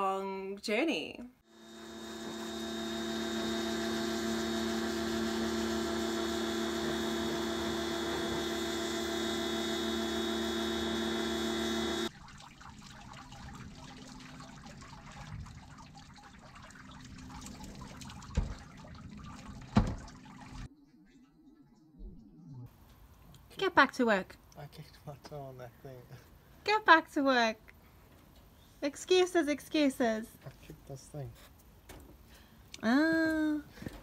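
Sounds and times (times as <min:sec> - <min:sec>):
pump machine hum: 0:01.5 - 0:20.7
water running from a hose: 0:01.6 - 0:20.7
water trickling and splashing: 0:12.1 - 0:20.7.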